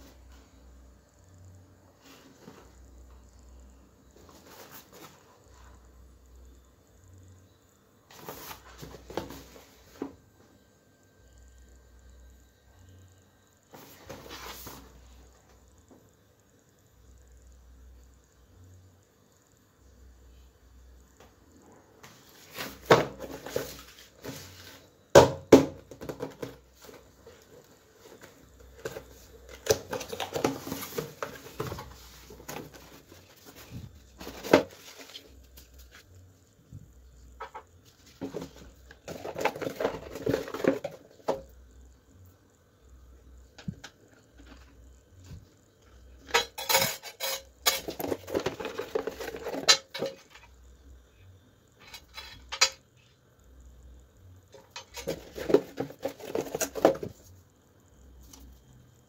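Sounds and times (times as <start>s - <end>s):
cardboard packaging rustling: 28.1s - 36.1s.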